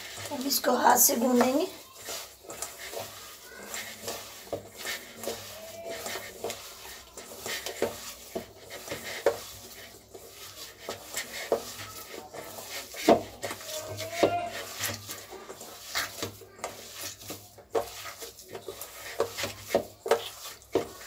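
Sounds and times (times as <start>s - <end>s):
hands kneading dough in steel bowl: 0.0s - 21.0s.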